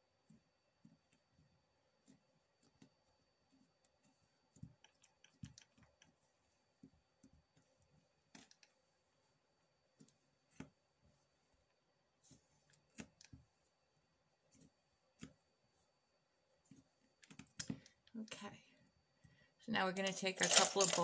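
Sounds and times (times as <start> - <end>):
fingers tapping clay: 0.1 - 8.7.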